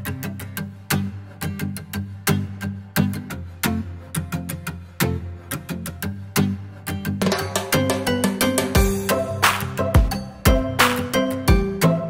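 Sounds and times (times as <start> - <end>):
sharp percussive hits: 7.2 - 11.7
plucked bass line: 7.2 - 12.0.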